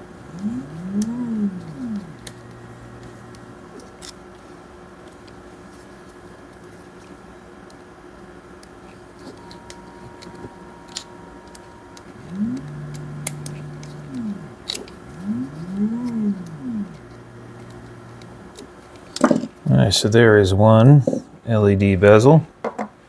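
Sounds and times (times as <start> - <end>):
low hum rising and falling: 0.0 - 4.0, 9.4 - 19.1
steady hum: 0.0 - 22.6.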